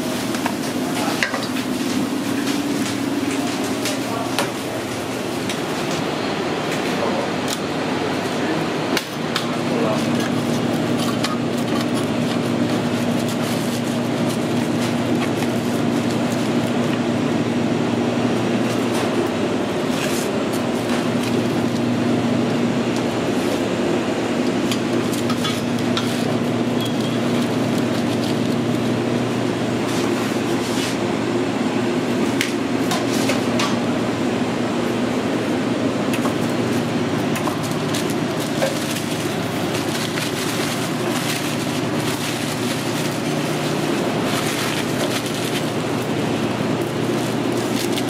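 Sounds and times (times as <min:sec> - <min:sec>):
kitchen equipment humming: 0:00.0 - 0:48.0
paper and foil crinkling: 0:09.6 - 0:16.9, 0:24.9 - 0:30.6, 0:36.3 - 0:48.0.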